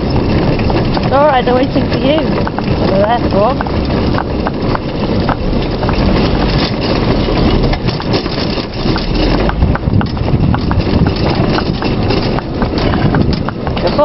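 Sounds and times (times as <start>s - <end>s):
carriage rolling: 0.0s - 14.0s
donkey hooves clip-clopping on tarmac: 0.0s - 14.0s.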